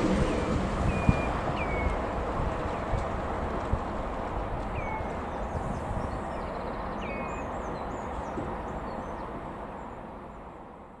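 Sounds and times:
outdoor background noise: 0.0s - 11.0s
bird chirps: 0.9s - 2.0s, 4.7s - 9.3s.

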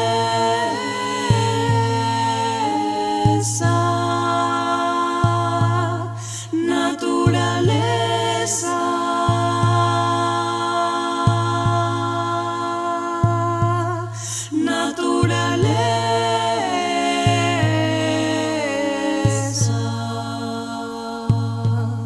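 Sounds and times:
held chords with wordless voices: 0.0s - 22.0s
low bass beat: 21.3s - 22.0s.

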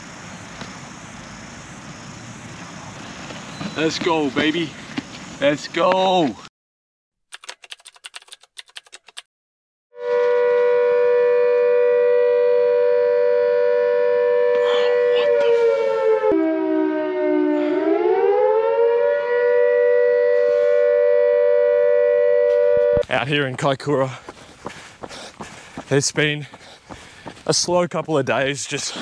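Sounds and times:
siren-like two-note tone: 10.0s - 23.0s.

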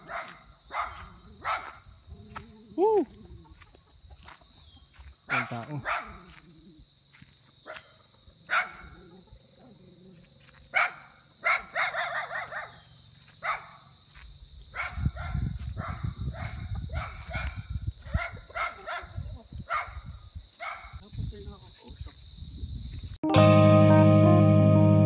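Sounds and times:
dog barking: 0.0s - 1.8s, 5.3s - 6.4s, 7.7s - 9.3s, 10.7s - 12.8s, 13.4s - 13.9s, 14.7s - 20.0s, 20.6s - 21.0s.

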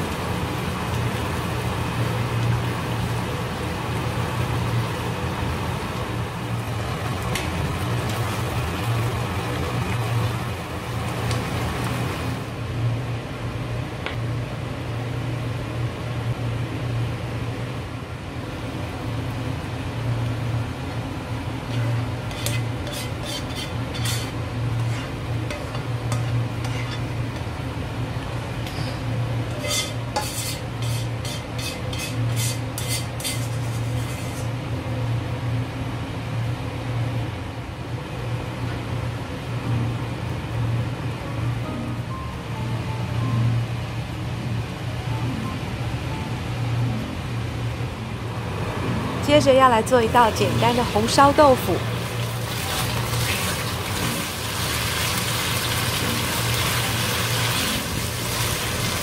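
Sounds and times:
steady low hum: 0.0s - 54.5s
spatula stirring: 21.6s - 27.2s, 29.5s - 34.5s
sauce bubbling in a frying pan: 52.0s - 59.0s.

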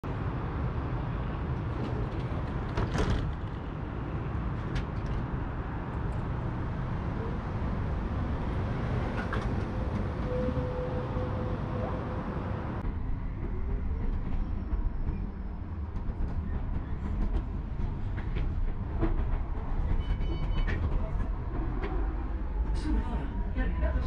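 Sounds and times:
tram rumbling: 0.0s - 24.0s.

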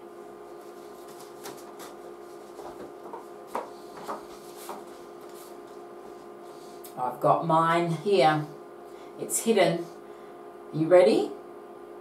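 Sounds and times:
electrical hum: 0.0s - 12.0s
paper rustling: 0.5s - 6.3s.

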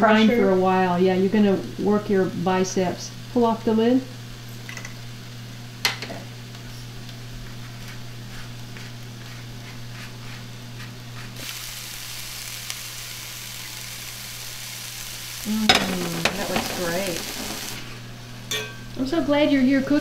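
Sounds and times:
vegetables sizzling in a skillet: 0.0s - 20.0s.

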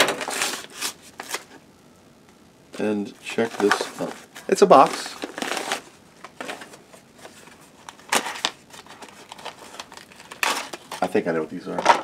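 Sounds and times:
cardboard scraping: 0.0s - 1.5s, 3.4s - 11.1s
cardboard box rustling: 3.4s - 11.0s.

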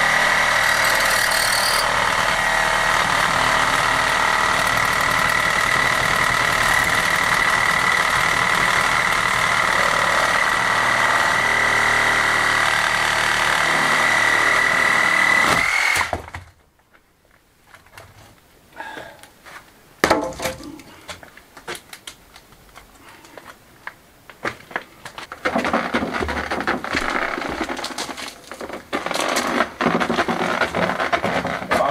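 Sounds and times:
cordless power tool running: 0.0s - 16.1s
rubble knocking and clattering: 20.0s - 22.9s, 24.4s - 31.9s.

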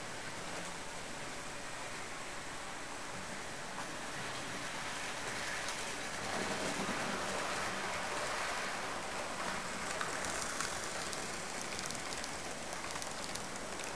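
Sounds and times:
model train wheels rumbling on track: 4.1s - 13.9s
light rapid clicks: 9.8s - 13.9s.

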